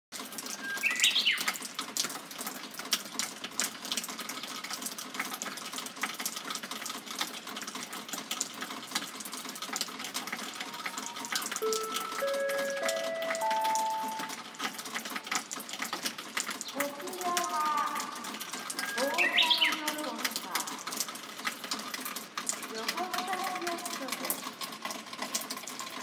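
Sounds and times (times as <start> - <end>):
water dripping and pattering: 0.1 - 26.0
steady rain hiss: 0.2 - 26.0
bird call: 0.6 - 1.5, 18.7 - 19.8.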